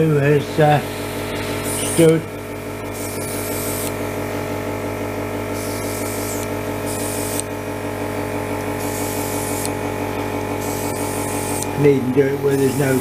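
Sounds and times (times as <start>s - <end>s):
compressor electric hum: 0.0s - 13.0s
airbrush hissing bursts: 0.8s - 2.1s, 2.8s - 4.0s, 5.5s - 7.5s, 8.7s - 9.8s, 10.6s - 13.0s.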